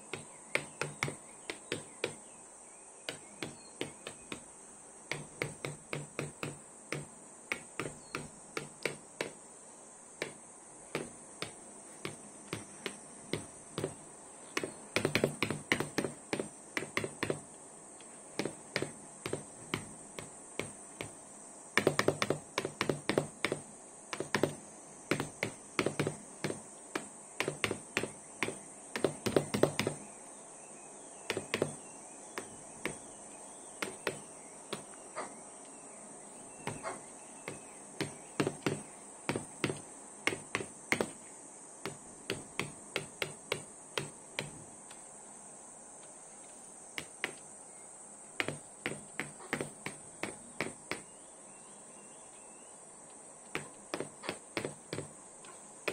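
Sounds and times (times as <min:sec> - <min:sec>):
beak tapping on screen: 0:00.0 - 0:02.3, 0:03.0 - 0:04.5, 0:05.1 - 0:09.4, 0:10.2 - 0:17.5, 0:18.4 - 0:21.2, 0:21.8 - 0:30.1, 0:31.2 - 0:35.3, 0:36.6 - 0:41.2, 0:41.8 - 0:44.6, 0:47.0 - 0:47.4, 0:48.4 - 0:51.1, 0:53.4 - 0:55.9
faint high whine: 0:00.0 - 0:55.9.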